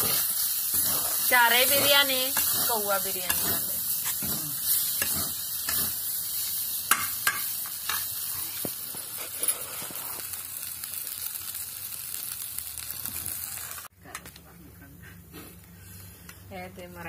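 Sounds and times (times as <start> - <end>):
spatula scraping a metal pan: 0.0 - 4.4
rice sizzling in a wok: 0.0 - 13.9.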